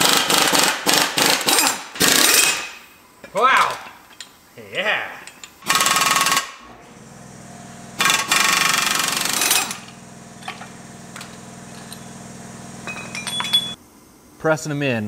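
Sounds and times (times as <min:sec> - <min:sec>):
air impact wrench hammering: 0:00.0 - 0:02.8, 0:05.6 - 0:06.6, 0:08.0 - 0:13.8
light metal clinks: 0:12.8 - 0:13.8.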